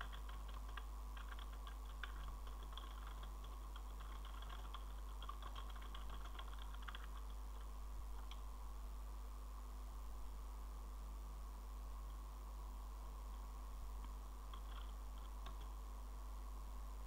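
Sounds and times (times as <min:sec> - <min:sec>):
faint keyboard typing: 0:00.0 - 0:08.5, 0:14.0 - 0:15.8.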